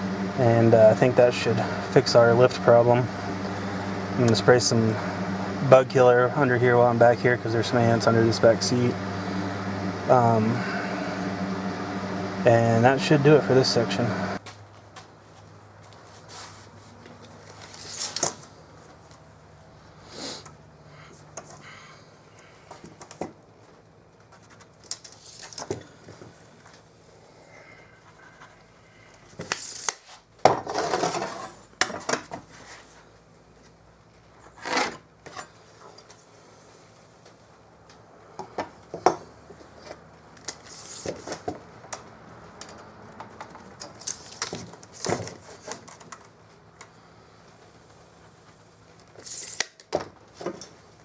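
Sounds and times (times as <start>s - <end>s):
tools scraping on wood: 34.4s - 36.2s
tools set down on wood: 49.9s - 50.8s.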